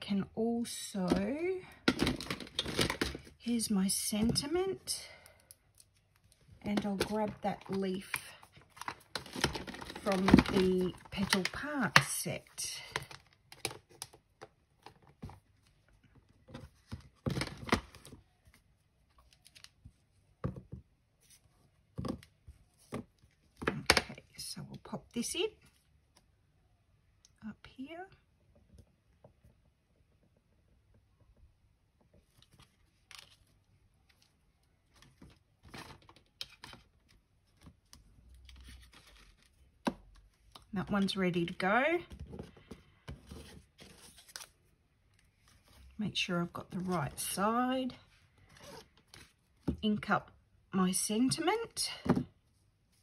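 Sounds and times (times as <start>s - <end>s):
paper or plastic rustling: 6.8s - 11.6s.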